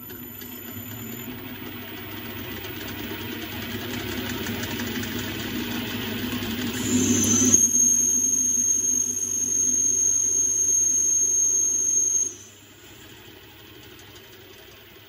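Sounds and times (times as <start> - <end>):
lathe cutting metal tube: 6.4 - 9.4.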